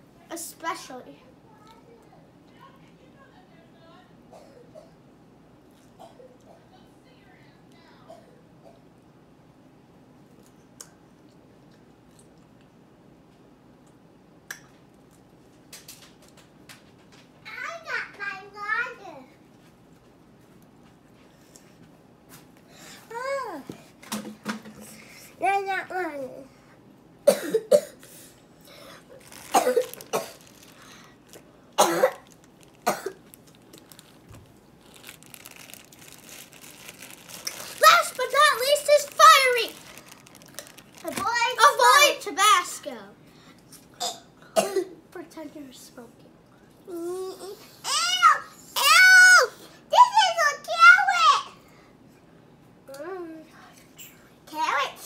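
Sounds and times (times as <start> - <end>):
child coughing: 4.3 - 5.0, 6.0 - 6.7, 8.1 - 8.9, 27.2 - 28.2, 29.4 - 30.7, 31.8 - 33.2, 44.0 - 45.0
chewing fruit: 10.3 - 12.8.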